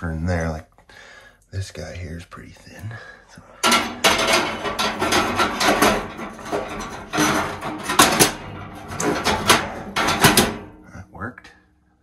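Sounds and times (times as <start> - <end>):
stones clacking against metal: 3.6 - 10.8.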